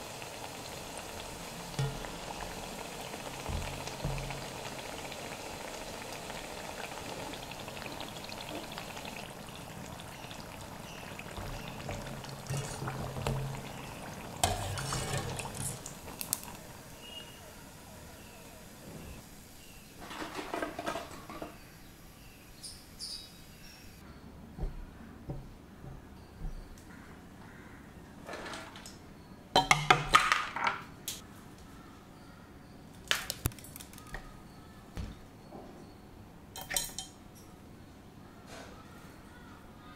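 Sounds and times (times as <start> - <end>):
food deep-frying in hot oil: 0.0 - 21.7
wire skimmer stirring in oil: 7.8 - 16.6
chilli breaking clicks: 33.0 - 34.3.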